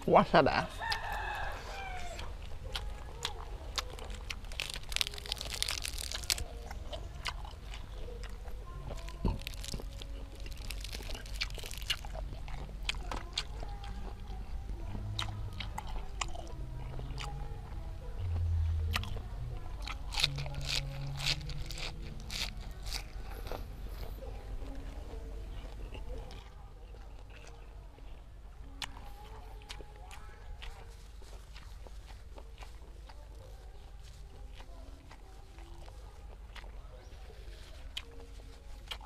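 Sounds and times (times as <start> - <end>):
leaves rustling: 0.0 - 13.1, 36.9 - 38.9
crunching and chewing: 0.0 - 39.0.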